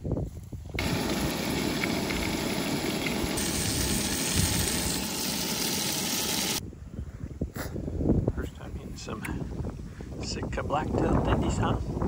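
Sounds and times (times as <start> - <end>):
meat sizzling in a frying pan: 0.8 - 6.6.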